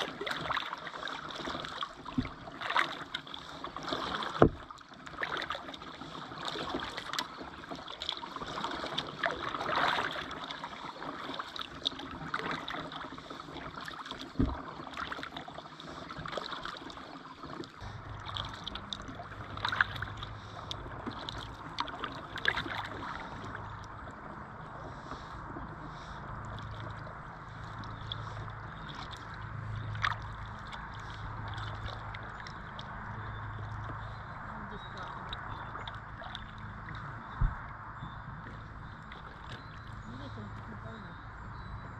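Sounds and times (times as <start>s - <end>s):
water dripping off paddle: 0.0s - 40.7s
kayak paddle strokes in water: 0.0s - 41.9s
steady low hum: 17.7s - 41.9s.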